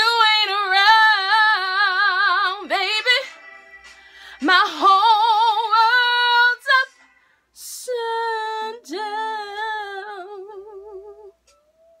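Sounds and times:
woman singing unaccompanied: 0:00.0 - 0:03.4, 0:04.4 - 0:11.6
audible breath: 0:03.9 - 0:04.4.

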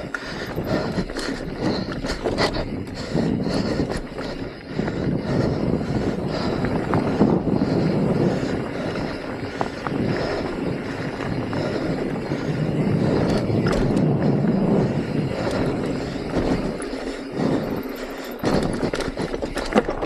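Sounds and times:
bike clicks and knocks: 0:00.0 - 0:05.2, 0:06.3 - 0:20.0
tyres rolling over dirt and rock: 0:15.6 - 0:20.0.

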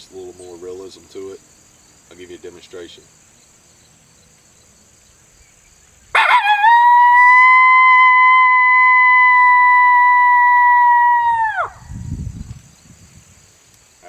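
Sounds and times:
coyote howl on a call: 0:06.2 - 0:11.8.

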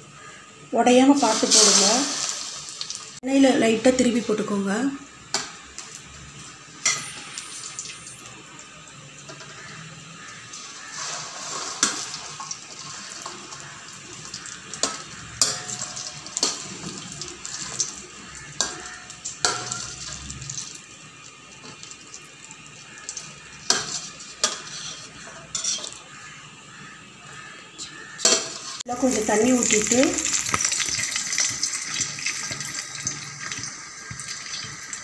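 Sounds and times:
food sizzling in hot oil: 0:00.8 - 0:35.0
metal skimmer clinking on pan: 0:18.6 - 0:20.2.

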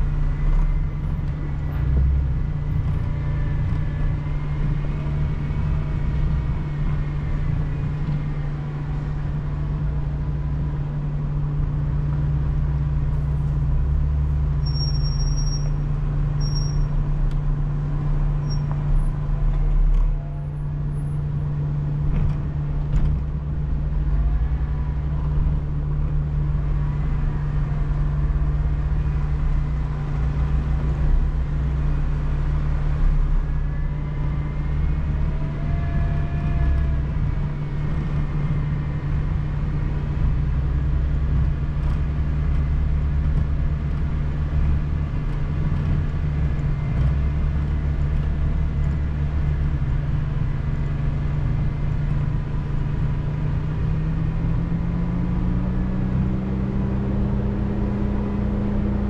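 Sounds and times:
vehicle engine droning: 0:00.0 - 0:59.0.

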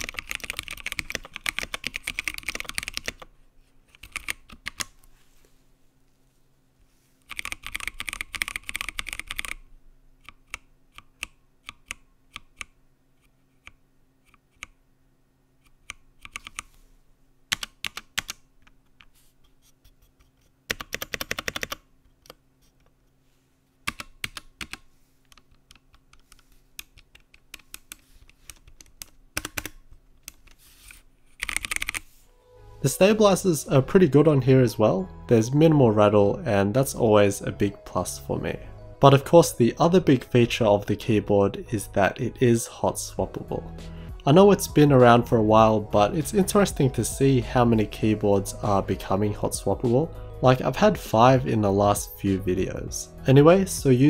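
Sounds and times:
mechanical keyboard typing: 0:00.0 - 0:03.3, 0:03.9 - 0:04.9, 0:07.3 - 0:09.6, 0:10.2 - 0:12.8, 0:15.8 - 0:16.7, 0:17.5 - 0:18.4, 0:20.7 - 0:21.9, 0:23.9 - 0:30.6, 0:31.4 - 0:32.0.

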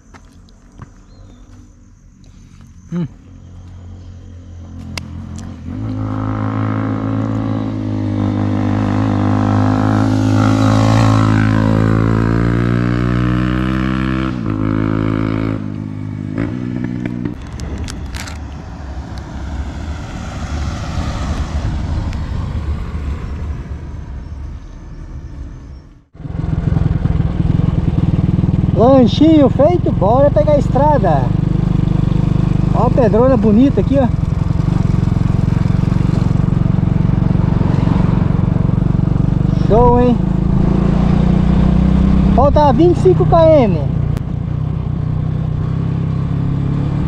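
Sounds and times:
vehicle engine running: 0:14.6 - 0:47.0.

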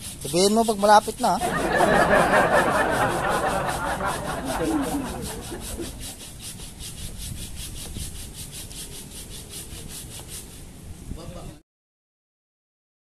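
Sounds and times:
hand saw cutting wood: 0:00.0 - 0:01.4, 0:02.0 - 0:10.6.

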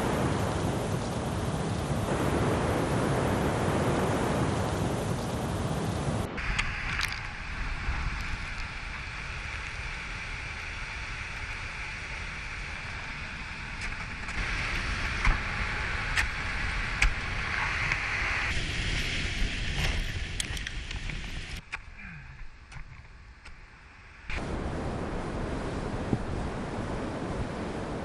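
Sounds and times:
waterfall roaring: 0:00.0 - 0:21.6, 0:24.3 - 0:28.0
wind buffeting microphone: 0:00.0 - 0:21.6, 0:24.3 - 0:28.0.

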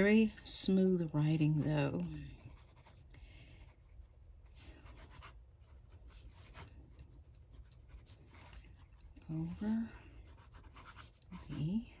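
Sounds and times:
fountain pen scratching on paper: 0:02.3 - 0:03.0, 0:03.6 - 0:12.0.

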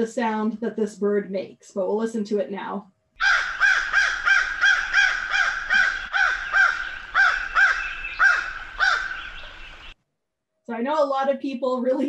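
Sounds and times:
crow cawing: 0:03.2 - 0:09.9.

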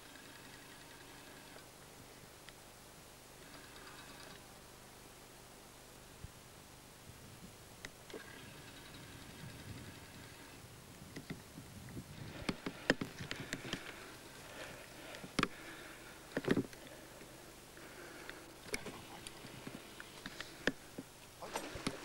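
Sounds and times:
brush rustling: 0:10.9 - 0:22.0.

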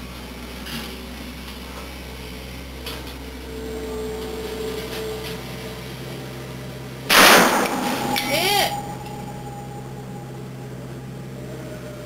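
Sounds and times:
steady low hum: 0:00.0 - 0:12.0
faint held tone: 0:03.4 - 0:12.0.

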